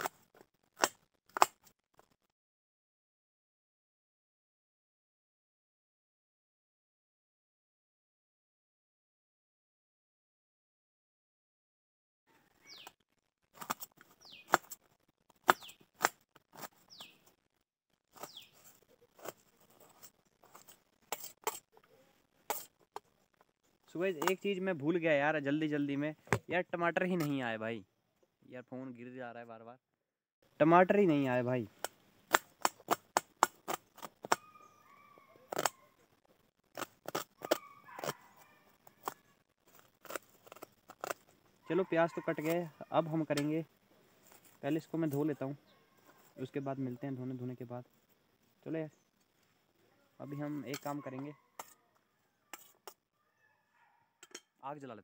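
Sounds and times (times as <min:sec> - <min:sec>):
knife cutting on steel plate: 0:52.5 - 0:53.0.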